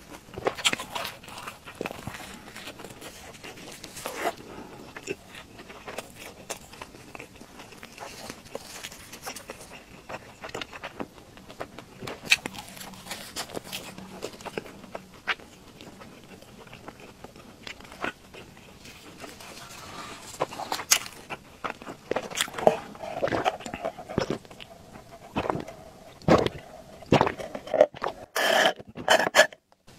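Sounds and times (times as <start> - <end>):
wet chewing and mouth clicks: 0.0 - 29.6
swallowing: 12.0 - 29.4
sipping through a straw: 28.3 - 29.6.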